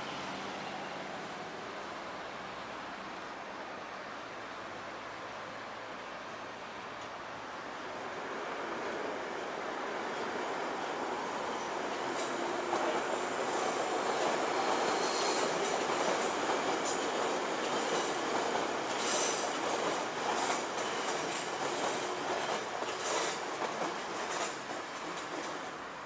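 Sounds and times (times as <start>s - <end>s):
train wheels on rails: 6.4s - 26.0s.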